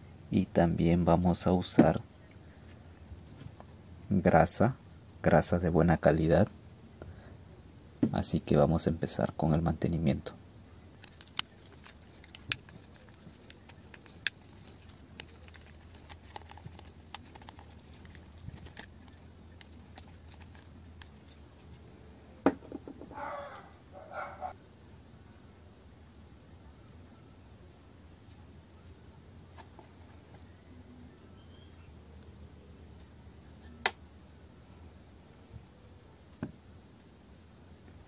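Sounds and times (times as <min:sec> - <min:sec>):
steady low hum: 0:00.0 - 0:38.0
plastic housing clicking and rasping: 0:11.0 - 0:21.4
screwdriver clicks and scrapes: 0:11.0 - 0:21.4.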